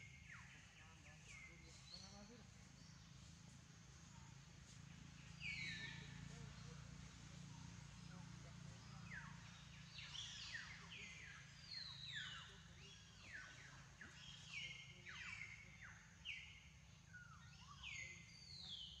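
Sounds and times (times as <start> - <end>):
birds chirping: 5.0 - 19.0.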